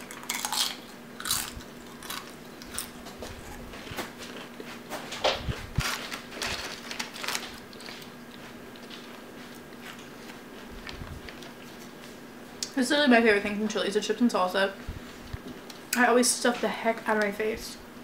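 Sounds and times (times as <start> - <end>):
chip crunching: 0.0 - 4.7, 5.8 - 12.0.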